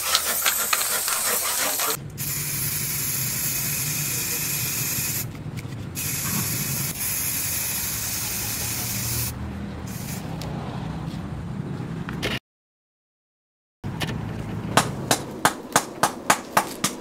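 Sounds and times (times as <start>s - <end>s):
spray paint can hissing: 0.0s - 5.3s, 6.0s - 9.3s, 9.9s - 10.3s.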